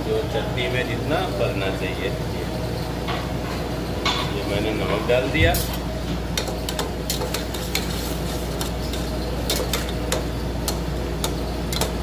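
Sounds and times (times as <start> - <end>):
steady low hum: 0.0 - 12.0
metal spatula scraping pot: 6.6 - 10.4.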